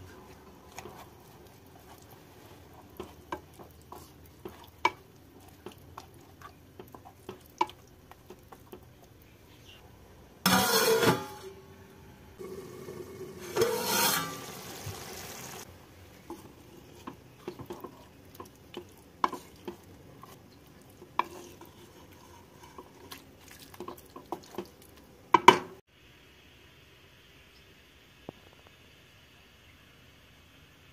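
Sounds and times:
wooden spatula scraping pan: 0.0 - 7.8, 10.5 - 11.6, 13.4 - 15.0, 16.2 - 24.7
pan hissing with steam: 12.4 - 15.7.

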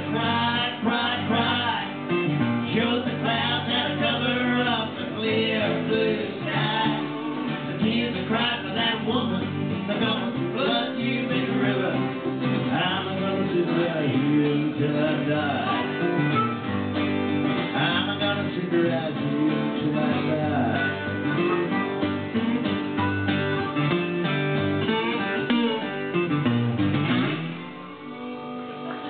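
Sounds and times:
acoustic guitars strumming: 0.0 - 29.0
harmonica playing: 15.6 - 17.4, 20.7 - 29.0.

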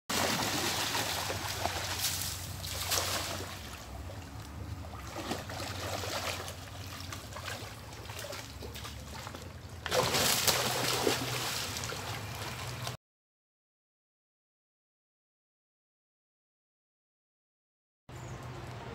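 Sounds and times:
water splashing around wading man: 0.1 - 13.0.

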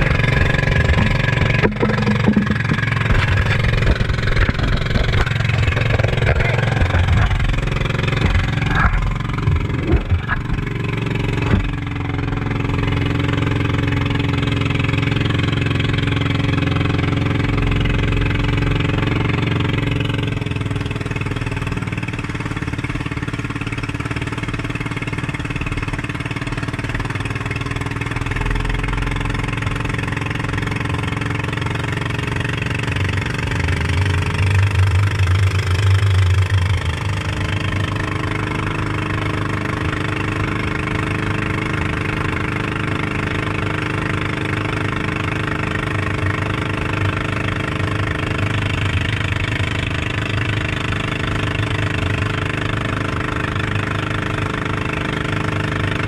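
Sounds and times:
boat engine running: 0.0 - 56.0
water rushing along hull: 0.0 - 56.0
sharp knocks: 0.4 - 10.7.

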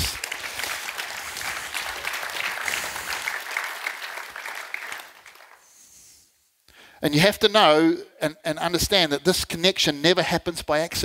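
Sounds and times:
congregation applauding: 0.0 - 5.8.

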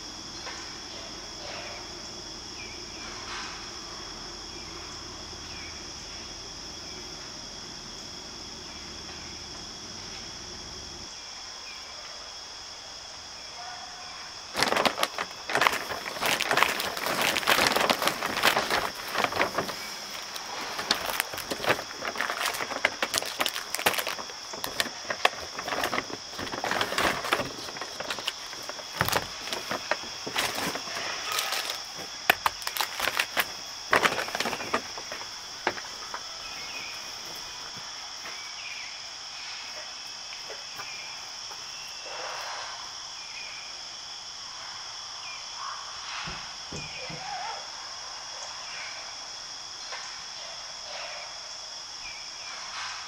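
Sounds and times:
chorus of crickets: 0.0 - 53.0
close rustling and clicking: 14.5 - 38.4.

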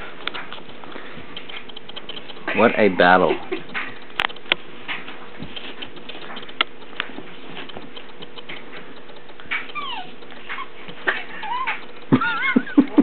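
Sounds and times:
claws scratching and clicking: 0.0 - 12.1
puppy whining: 5.3 - 12.6.

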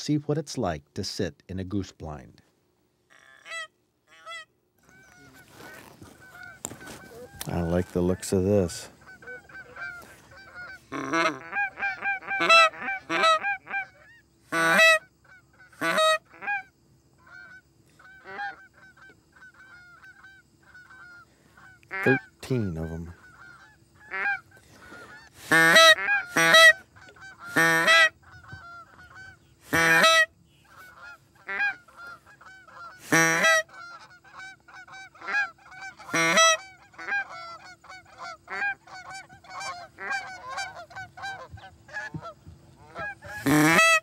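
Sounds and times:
geese honking: 3.1 - 44.0
goose call honks: 3.1 - 44.0.

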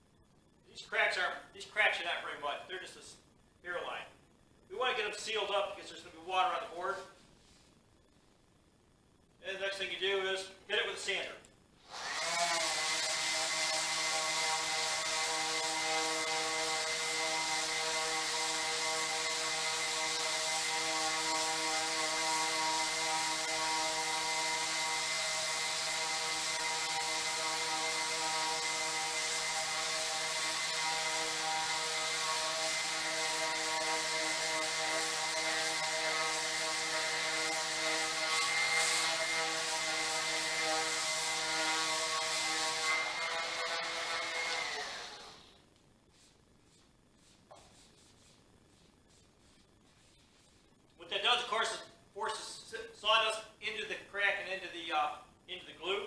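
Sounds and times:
sanding disc hissing on wood: 11.8 - 50.7
sander motor whine: 11.9 - 45.6.

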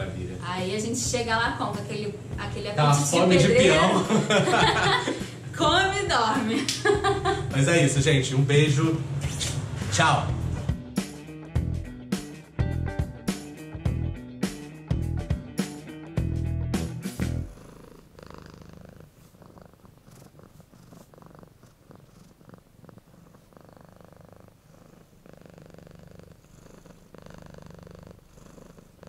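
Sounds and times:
strummed music: 9.3 - 17.6
cat purring: 17.2 - 29.0.

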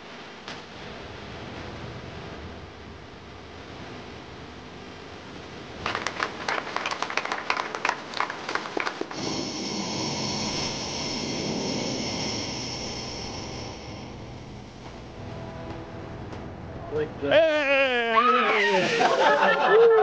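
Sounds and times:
small group clapping: 5.8 - 9.2
jet engine idling with whine: 8.6 - 17.6.

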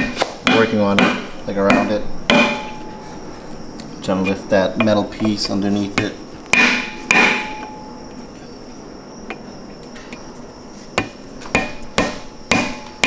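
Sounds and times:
chisel knocking on metal: 0.0 - 2.9, 4.7 - 7.8, 11.0 - 13.0.

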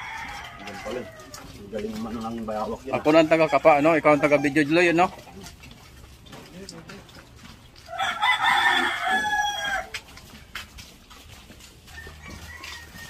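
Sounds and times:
rooster crowing: 0.0 - 1.4, 3.1 - 4.9, 7.9 - 9.9, 11.9 - 13.0.

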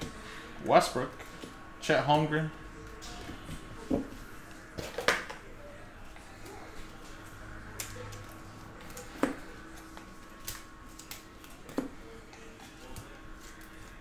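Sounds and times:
faint steady hum: 0.0 - 14.0
cards snapping: 7.7 - 11.9.

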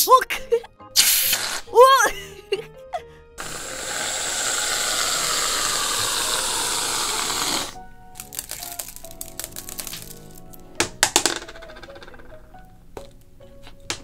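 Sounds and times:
aerosol can spraying hiss: 1.0 - 1.7, 3.4 - 7.8
sprinkles clicking: 7.6 - 12.4.

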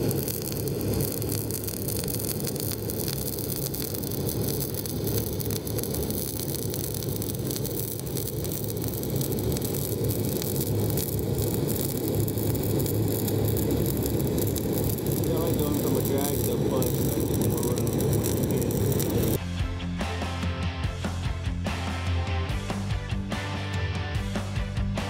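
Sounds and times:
constant low hum: 0.0 - 19.4
welding arc crackling: 0.0 - 19.4.

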